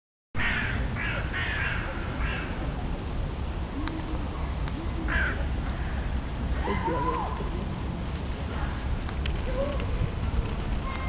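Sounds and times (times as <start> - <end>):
crow cawing: 0.4 - 2.6.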